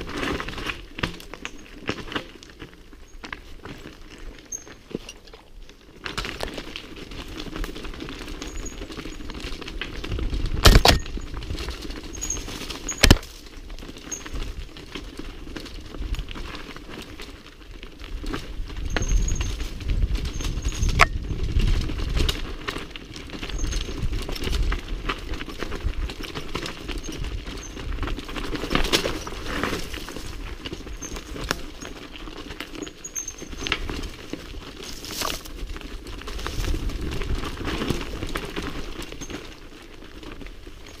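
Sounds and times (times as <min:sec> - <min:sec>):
tyres crunching over loose stones: 0:00.0 - 0:41.0
wind rumble on microphone: 0:07.2 - 0:15.0, 0:18.0 - 0:31.6, 0:33.4 - 0:39.2.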